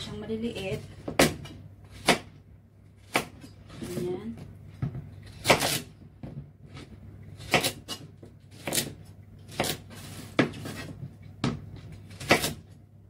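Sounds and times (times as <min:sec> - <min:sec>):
knife chopping on cutting board: 0:01.1 - 0:02.4, 0:03.0 - 0:04.0, 0:04.8 - 0:12.7.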